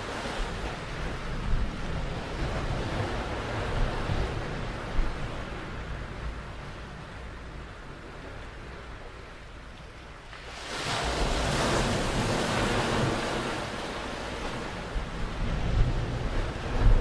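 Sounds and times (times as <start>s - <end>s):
wind rumbling on microphone: 0.0s - 17.0s
wave breaking on beach: 10.5s - 15.4s.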